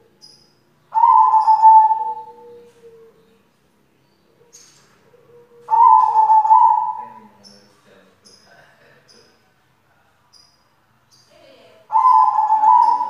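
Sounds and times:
dove cooing: 0.9s - 3.4s, 4.3s - 7.4s, 11.8s - 13.0s.

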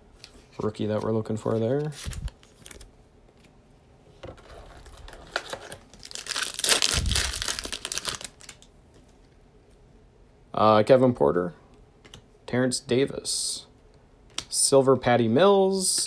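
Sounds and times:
wrapper crinkling and tearing: 4.7s - 8.7s.

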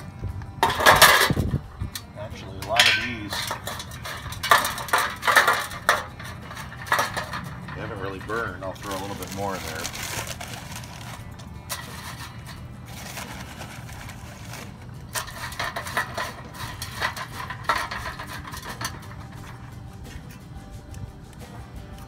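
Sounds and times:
steady low hum: 0.0s - 22.0s
wood chips scraping against tray: 2.6s - 19.7s
wood chips poured into metal tray: 2.7s - 19.3s.

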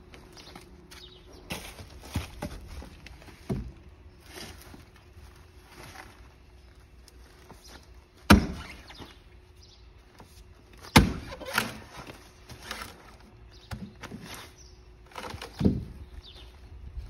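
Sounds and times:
sledgehammer striking wood: 8.3s - 8.8s, 10.9s - 11.8s.

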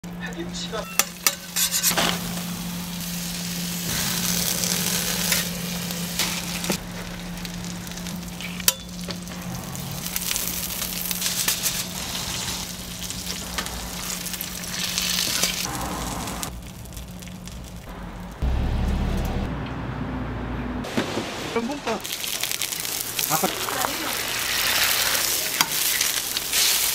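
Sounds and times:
low hum: 0.0s - 20.9s
food sizzling on a griddle: 0.6s - 17.8s, 21.1s - 26.9s
low rumble: 2.1s - 20.9s.

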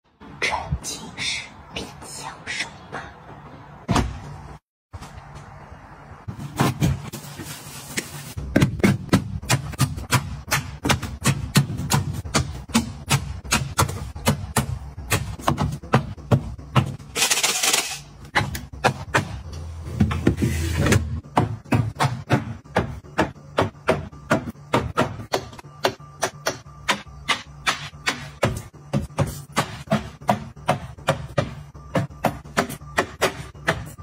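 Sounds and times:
shelf scraping: 6.3s - 8.5s, 19.8s - 21.2s.

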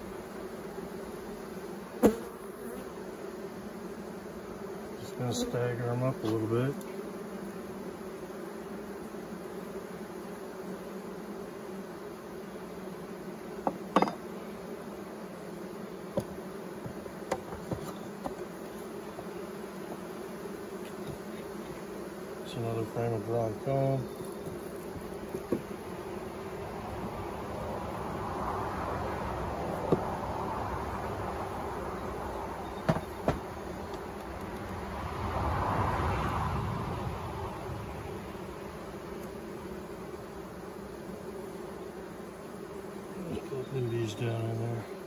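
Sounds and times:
honeybees buzzing: 0.0s - 45.0s
knocks on wooden hive frames: 13.6s - 14.3s, 16.1s - 18.6s, 24.4s - 25.8s, 29.8s - 30.2s, 32.8s - 34.4s.

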